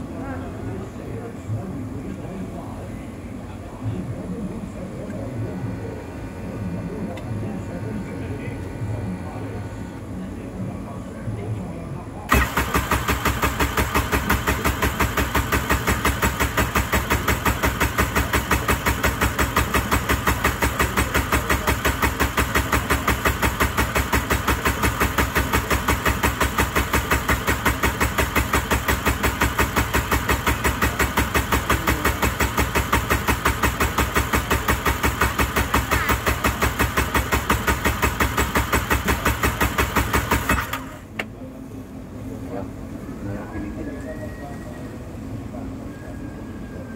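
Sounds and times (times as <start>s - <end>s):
jet ski engine cranking: 12.3s - 41.3s.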